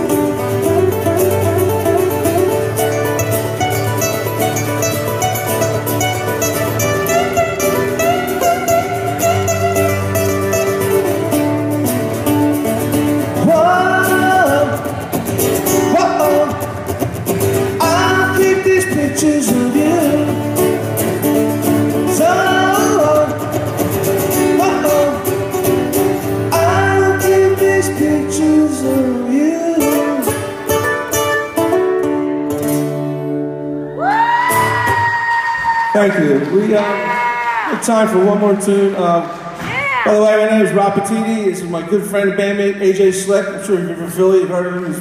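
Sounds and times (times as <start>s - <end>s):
strummed acoustic guitar chords: 0.0s - 33.8s
guitar lead melody: 0.0s - 35.0s.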